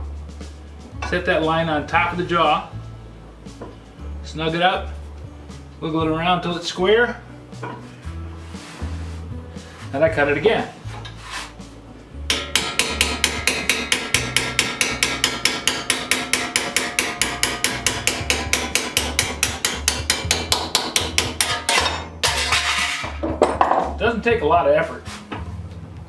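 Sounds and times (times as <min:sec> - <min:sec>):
hammer blows on a chisel: 0:12.3 - 0:22.9.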